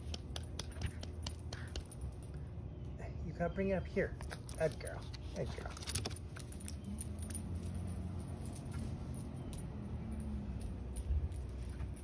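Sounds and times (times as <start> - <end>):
low outdoor rumble: 0.0 - 12.0
faint light jingles: 0.8 - 12.0.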